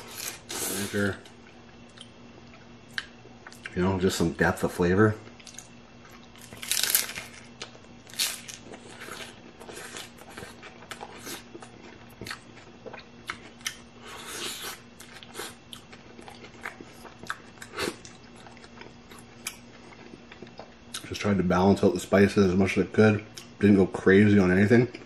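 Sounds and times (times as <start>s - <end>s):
crunchy chewing: 0.0s - 3.8s, 5.2s - 21.1s
taco shell crunching bites: 5.4s - 19.7s.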